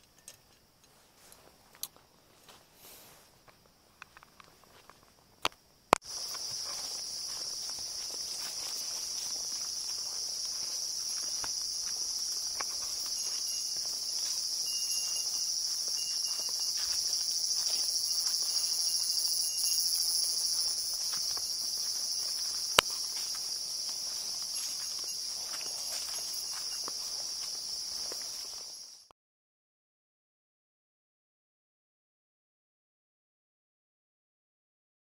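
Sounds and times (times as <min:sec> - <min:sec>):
footsteps on dirt trail: 0:01.0 - 0:05.1, 0:06.0 - 0:29.0
insects buzzing: 0:01.9 - 0:29.0.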